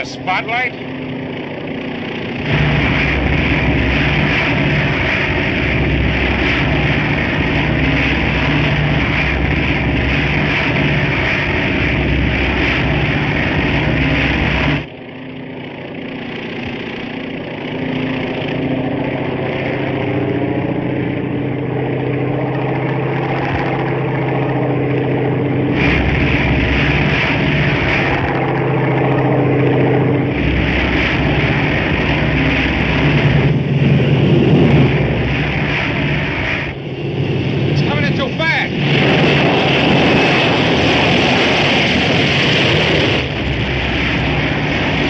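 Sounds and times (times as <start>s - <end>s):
airplane engine droning: 0.0s - 45.0s.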